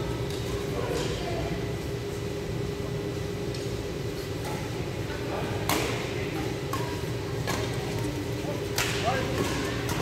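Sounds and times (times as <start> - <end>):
rackets striking shuttlecock: 5.6 - 8.0, 8.7 - 10.0.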